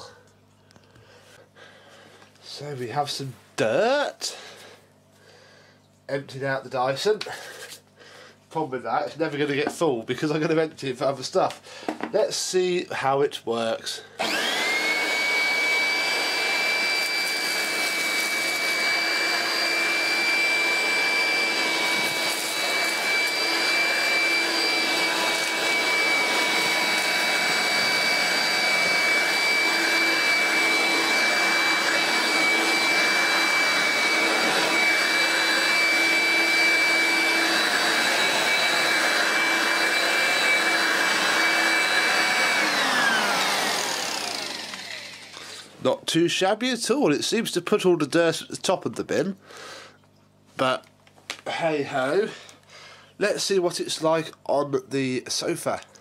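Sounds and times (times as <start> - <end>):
handheld vacuum motor whine: 14.2 - 45.7.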